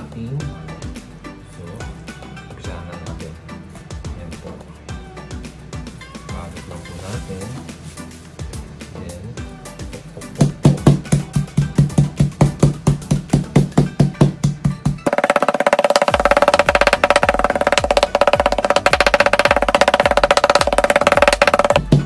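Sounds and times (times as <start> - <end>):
background music: 0.0 - 22.0
meat mallet pounding: 10.4 - 22.0.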